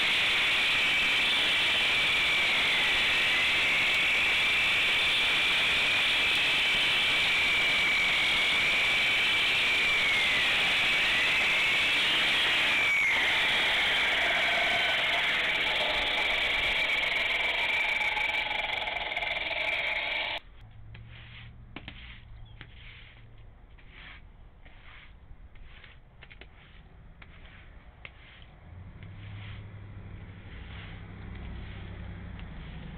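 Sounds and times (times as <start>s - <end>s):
concrete saw cutting concrete: 0.0s - 20.4s, 27.4s - 32.9s
power tool motor running: 0.0s - 20.4s.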